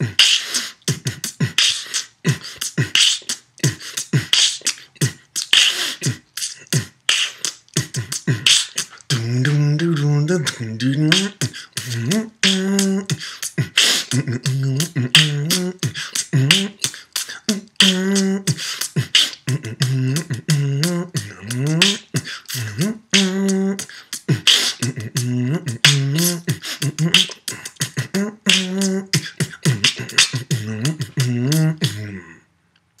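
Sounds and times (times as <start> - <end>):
man beatboxing: 0.0 - 32.4
hummed bassline: 14.2 - 15.8, 19.5 - 22.0, 24.8 - 27.2, 29.7 - 32.1.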